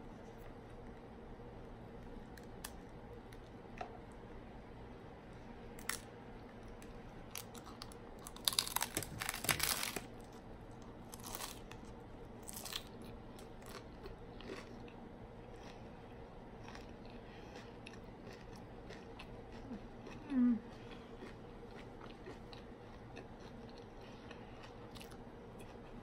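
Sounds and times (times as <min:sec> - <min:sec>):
taco shell crunching: 0:07.3 - 0:10.3, 0:11.1 - 0:14.7.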